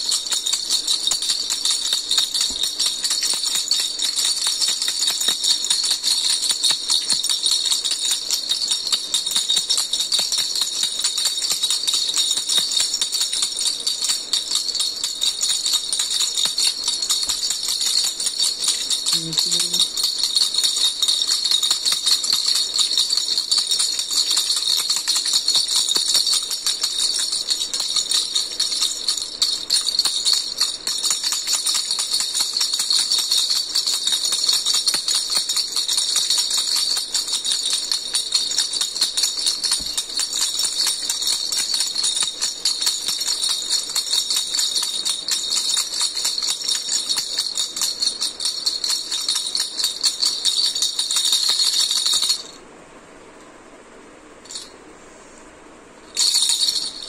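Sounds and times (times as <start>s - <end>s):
baby rattle jingling: 0.0s - 52.6s, 54.4s - 54.7s, 56.1s - 57.0s.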